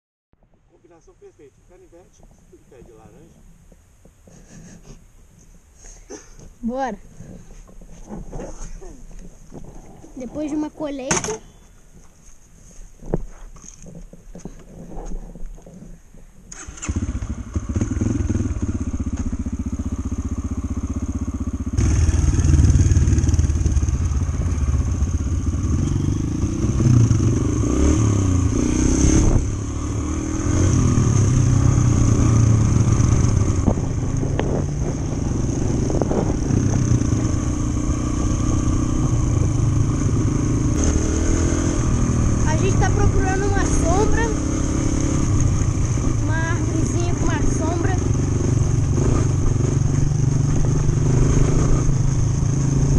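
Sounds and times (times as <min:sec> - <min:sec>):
dirt bike engine revving: 0:16.5 - 0:52.9.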